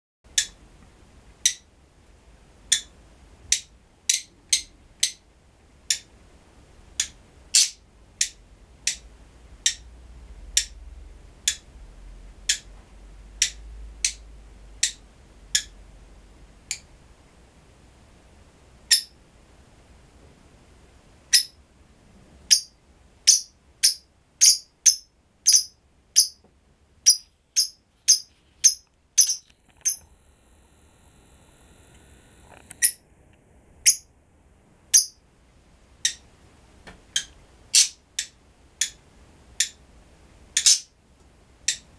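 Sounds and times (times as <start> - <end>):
lovebirds croaking calls: 7.0 - 9.0, 14.8 - 15.8, 22.5 - 26.4, 27.1 - 30.0, 34.9 - 35.2, 37.2 - 39.0, 40.6 - 40.9.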